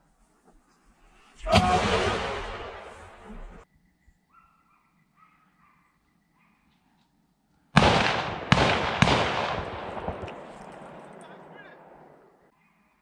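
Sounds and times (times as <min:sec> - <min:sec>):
gunshot: 0:01.4 - 0:03.6, 0:07.8 - 0:12.2
distant dogs barking: 0:04.3 - 0:06.8.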